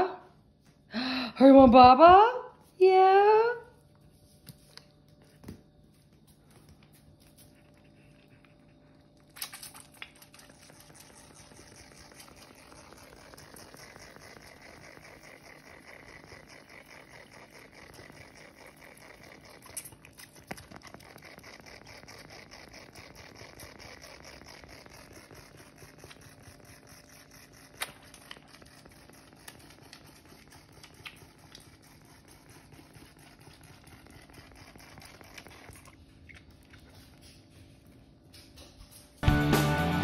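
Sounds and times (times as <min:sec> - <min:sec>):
goat kid suckling from bottle: 0:07.2 - 0:37.6.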